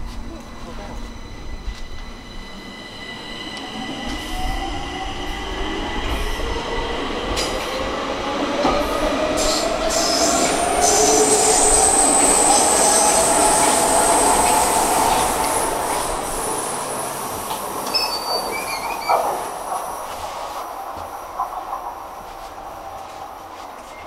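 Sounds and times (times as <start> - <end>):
train wheel squeal: 0.6 - 6.4, 9.3 - 20.2.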